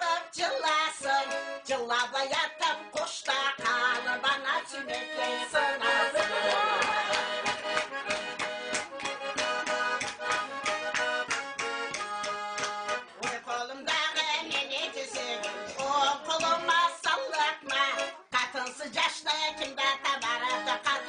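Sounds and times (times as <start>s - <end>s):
button accordion playing folk tune: 0.0s - 21.0s
hand clapping: 0.6s - 13.5s, 14.2s - 21.0s.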